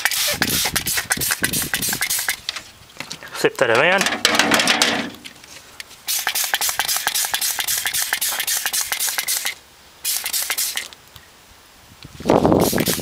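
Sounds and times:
spray bottle hissing squirts: 0:00.0 - 0:02.5, 0:06.0 - 0:10.9, 0:12.6 - 0:13.0.

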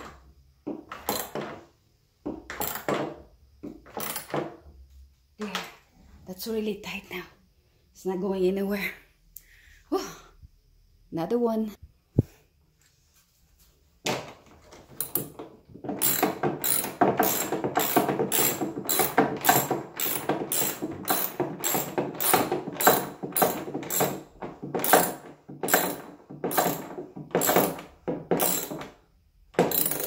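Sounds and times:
ratchet wrench clicking: 0:29.7 - 0:30.0.

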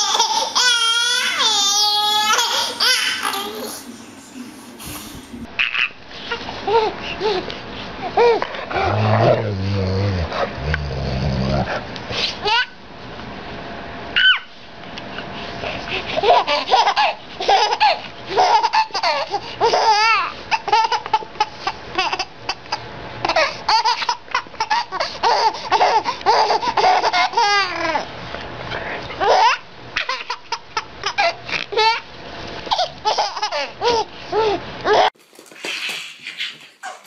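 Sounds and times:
baby laughing: 0:00.0 - 0:04.0, 0:12.4 - 0:12.7, 0:16.1 - 0:28.1, 0:29.2 - 0:32.0, 0:32.7 - 0:35.1.

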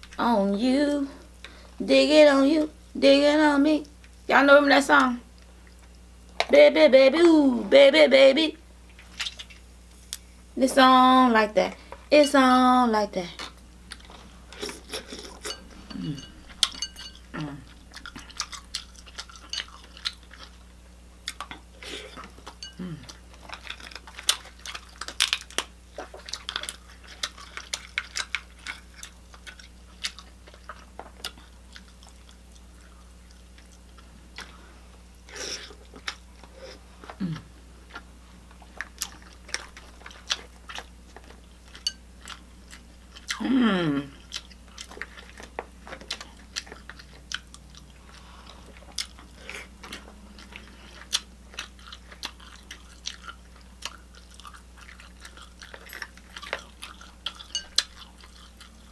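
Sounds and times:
steady low hum: 0:00.0 - 0:58.9
chewing and smacking: 0:05.3 - 0:06.5, 0:08.9 - 0:10.3, 0:13.3 - 0:34.7, 0:35.6 - 0:43.4, 0:44.1 - 0:58.9.

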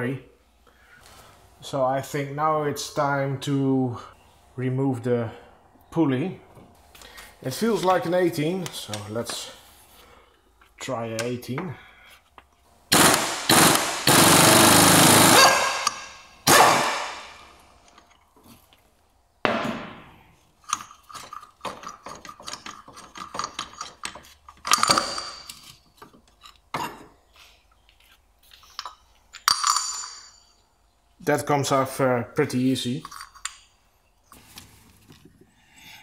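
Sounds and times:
impact wrench hammering: 0:12.9 - 0:17.5.

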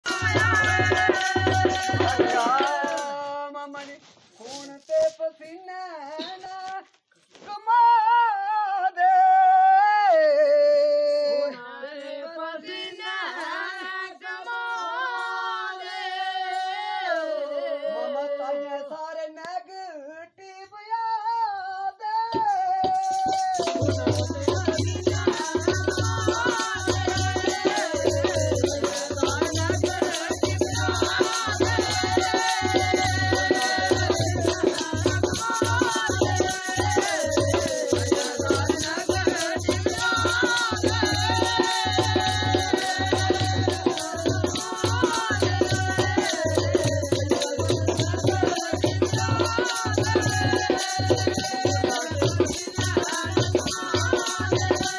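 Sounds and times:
drum beat: 0:00.0 - 0:03.2, 0:22.4 - 0:54.9
rattling percussion: 0:00.0 - 0:05.3, 0:22.3 - 0:54.9.

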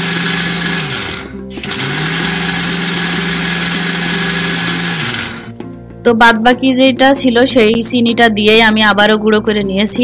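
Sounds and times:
mixer grinder grinding: 0:00.0 - 0:05.5.

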